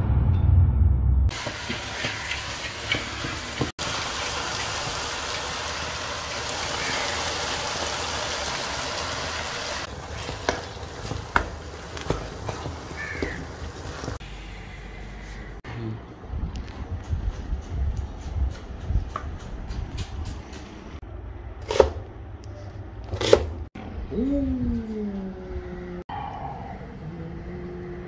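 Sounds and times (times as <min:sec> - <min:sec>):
food sizzling in a pan: 0:01.3 - 0:14.2.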